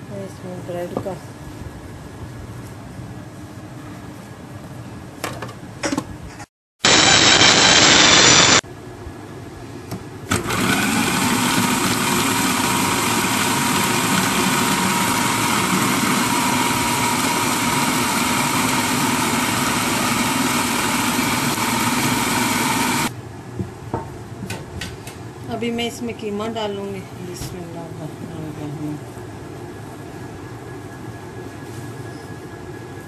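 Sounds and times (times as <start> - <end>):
food processor running: 6.9 - 8.6, 10.3 - 23.1.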